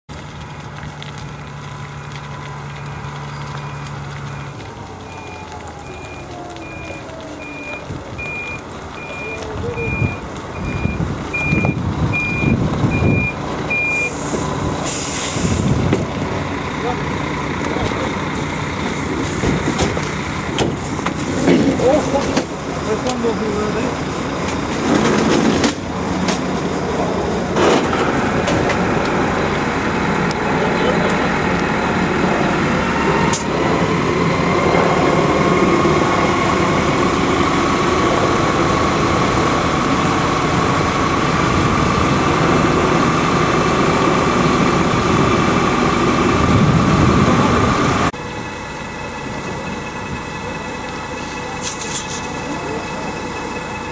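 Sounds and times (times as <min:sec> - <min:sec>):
brush crackling as it burns: 0:00.1 - 0:53.9
heavy vehicle engine running: 0:00.1 - 0:53.9
reversing beeps: 0:02.8 - 0:14.2.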